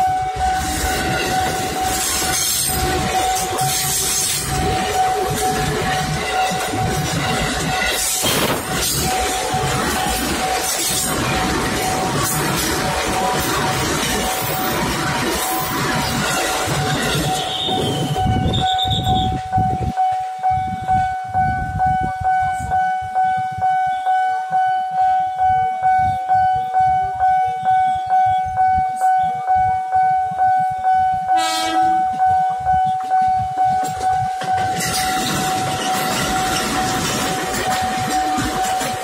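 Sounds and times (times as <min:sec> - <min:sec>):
train cars rumbling past: 0:00.0 - 0:20.4, 0:31.1 - 0:39.0
train horn blast: 0:17.2 - 0:19.4, 0:26.4 - 0:33.0.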